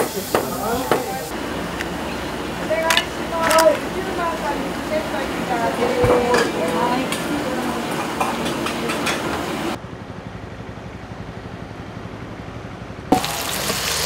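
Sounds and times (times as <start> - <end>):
food sizzling: 0.0 - 9.8, 13.1 - 14.0
road traffic rumble: 0.0 - 14.0
dishes and utensils clattering: 5.7 - 9.8.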